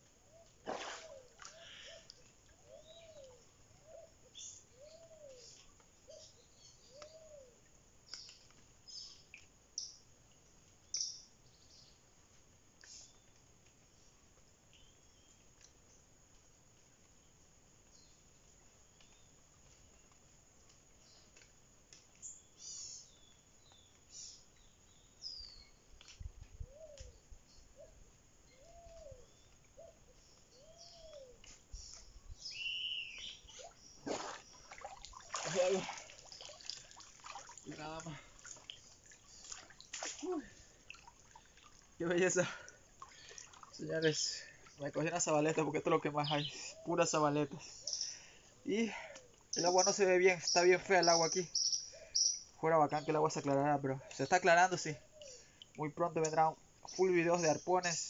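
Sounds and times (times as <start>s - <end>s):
wild birds chirping: 0.0s - 58.0s
water splashing: 0.6s - 1.6s, 33.5s - 44.6s.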